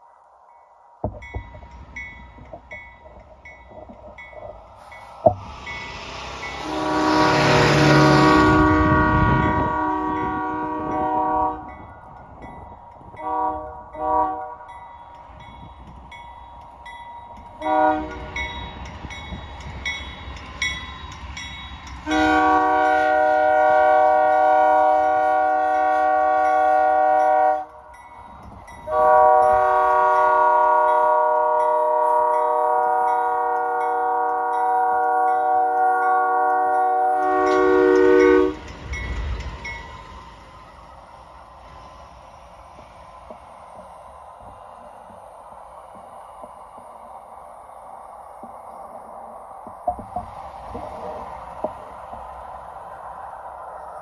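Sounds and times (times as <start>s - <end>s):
locomotive air horn blasts: 6.5s - 11.8s, 13.2s - 14.7s, 17.6s - 18.4s, 22.0s - 27.8s, 28.9s - 38.7s.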